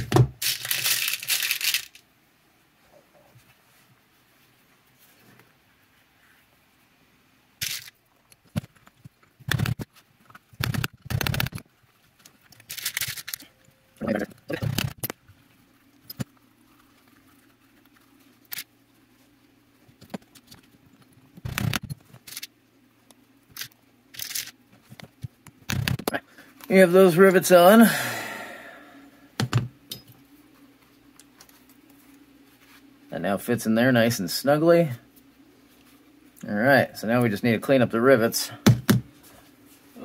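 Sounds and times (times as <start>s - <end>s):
clinks of tools and rivets: 29.9s - 30.2s.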